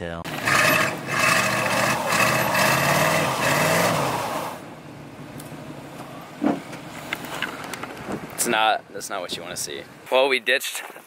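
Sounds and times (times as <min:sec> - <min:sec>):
truck engine revving: 0:00.3 - 0:08.4.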